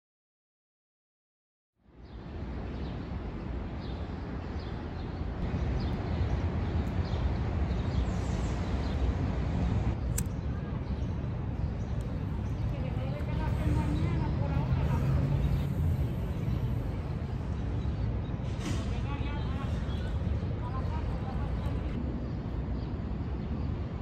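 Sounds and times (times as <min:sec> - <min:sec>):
birds chirping: 0:02.0 - 0:24.0
sharp click: 0:10.1 - 0:10.4.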